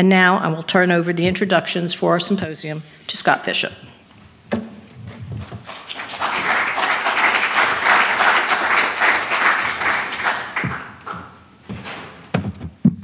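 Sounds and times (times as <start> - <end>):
audience applauding: 5.6 - 11.4.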